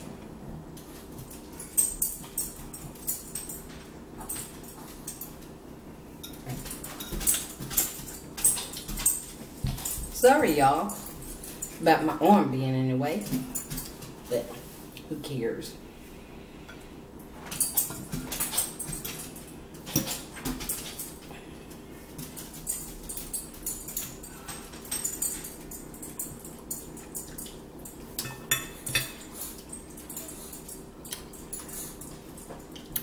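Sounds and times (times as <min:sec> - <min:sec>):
forks clinking on plates: 0:06.2 - 0:11.8, 0:22.2 - 0:33.0.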